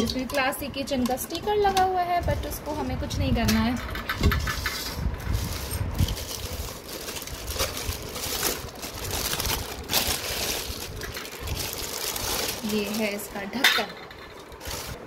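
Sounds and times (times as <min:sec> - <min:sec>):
rustling: 0:04.4 - 0:13.3, 0:14.2 - 0:15.0.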